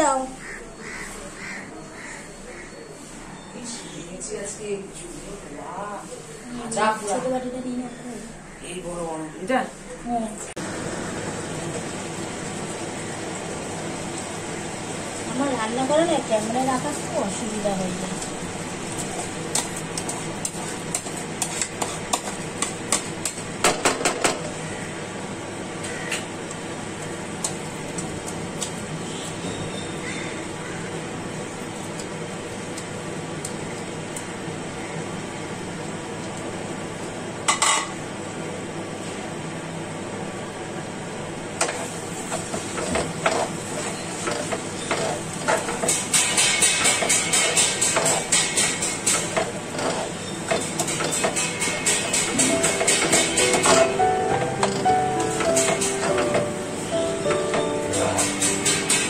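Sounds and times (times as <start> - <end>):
frying hiss: 3.2 - 59.0
spatula scraping in a pan: 19.0 - 23.4, 41.6 - 53.5
rhythmic background music: 52.3 - 59.0.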